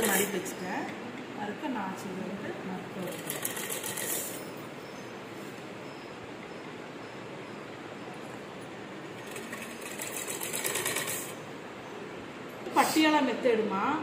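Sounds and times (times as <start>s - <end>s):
sewing machine stitching: 3.0s - 4.4s, 9.2s - 11.4s.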